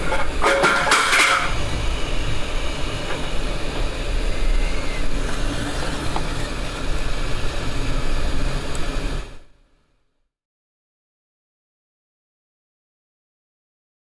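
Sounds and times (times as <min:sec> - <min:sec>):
hot air blower rushing: 0:00.0 - 0:09.6.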